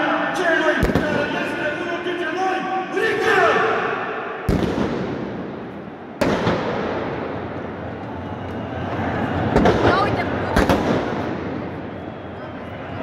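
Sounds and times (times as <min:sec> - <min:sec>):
firecracker bangs echoing: 0:00.7 - 0:01.7, 0:03.7 - 0:07.7, 0:09.5 - 0:12.1.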